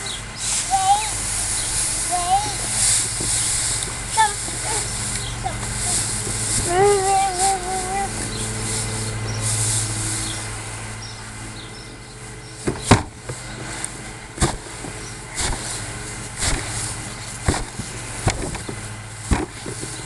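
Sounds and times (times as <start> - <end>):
hay rustling: 0.0 - 20.0
low hum: 0.0 - 20.0.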